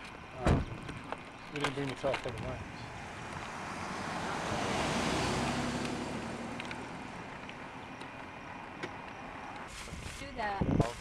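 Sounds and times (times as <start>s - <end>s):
wind on microphone: 9.8s - 11.0s.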